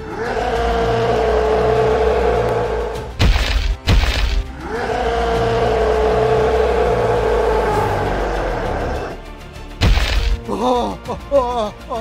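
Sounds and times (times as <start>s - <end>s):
background music: 0.0s - 12.0s
crashing impact sound effects: 3.2s - 4.4s, 9.8s - 10.4s.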